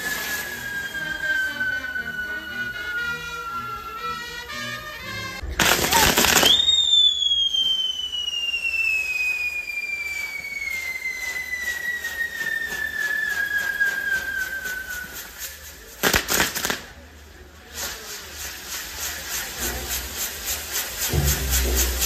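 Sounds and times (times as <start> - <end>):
loud firework cracks: 0.0 - 4.2, 5.4 - 22.0
firework whistle falling in pitch: 0.0 - 15.7, 21.1 - 22.0.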